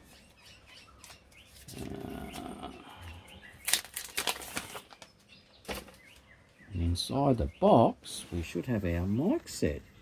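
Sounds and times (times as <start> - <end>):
plastic film crinkling: 3.6 - 6.0.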